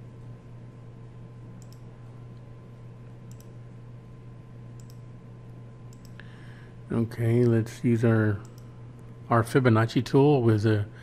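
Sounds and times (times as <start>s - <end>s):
steady low hum: 0.0s - 11.0s
computer mouse clicks: 1.6s - 2.5s, 3.3s - 3.6s, 4.7s - 5.0s, 5.9s - 6.2s, 8.4s - 8.7s.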